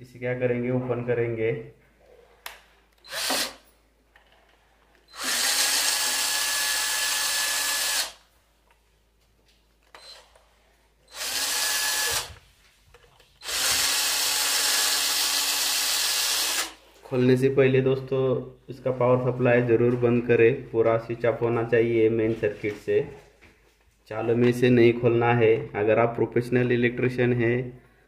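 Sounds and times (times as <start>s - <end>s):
cordless drill motor whine: 3.0s - 3.6s, 5.1s - 8.2s, 11.1s - 12.4s, 13.4s - 16.8s.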